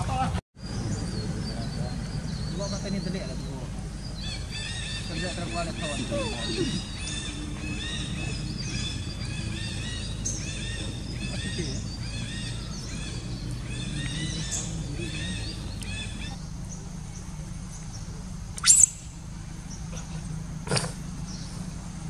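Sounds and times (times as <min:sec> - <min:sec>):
birds calling: 0:00.0 - 0:22.0
low background hum: 0:00.1 - 0:22.0
short falling squeal: 0:18.6 - 0:19.2.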